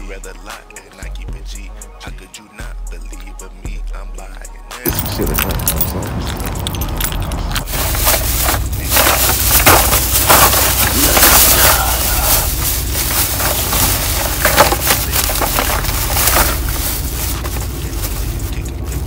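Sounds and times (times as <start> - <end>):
plastic bag crinkling: 4.9 - 19.0.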